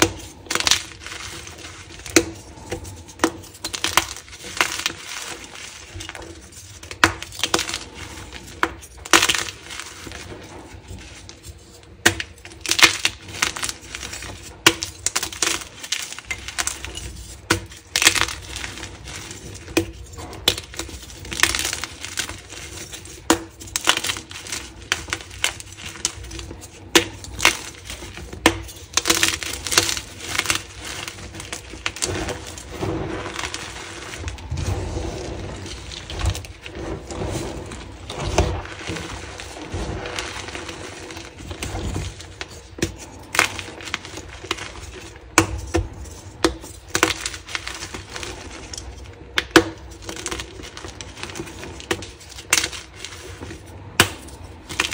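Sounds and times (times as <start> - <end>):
chalk blocks crunching by hand: 0.0 - 54.9.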